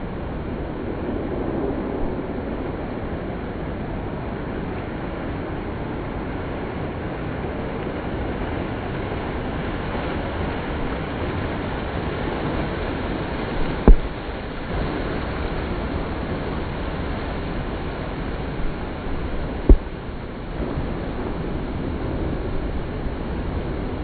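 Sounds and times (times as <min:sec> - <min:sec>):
wind: 0:00.0 - 0:24.0
surf: 0:08.4 - 0:24.0
firework pop and boom: 0:13.6 - 0:14.2, 0:19.6 - 0:20.0.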